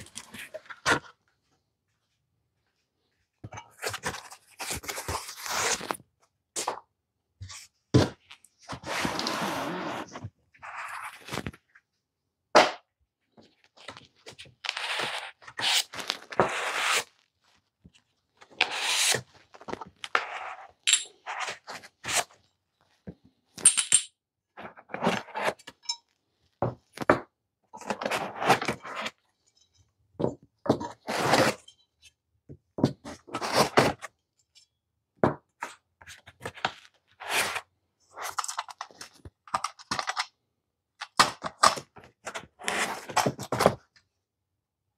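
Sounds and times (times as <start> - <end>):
parts unpacked from foam box: 3.7 - 6.0.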